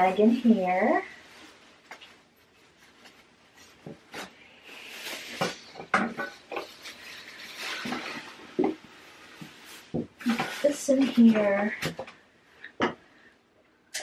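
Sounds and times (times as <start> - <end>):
plastic bag crinkling: 6.4 - 11.8.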